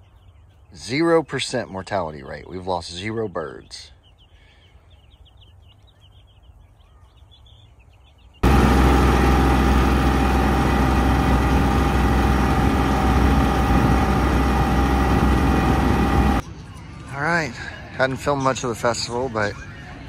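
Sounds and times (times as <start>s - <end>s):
chicks peeping: 0.0s - 16.4s
tractor engine running: 8.4s - 16.4s.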